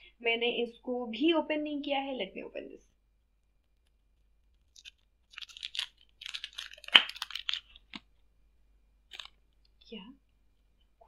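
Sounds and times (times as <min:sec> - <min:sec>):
plastic packaging crinkling: 0:04.4 - 0:08.2, 0:09.0 - 0:09.6.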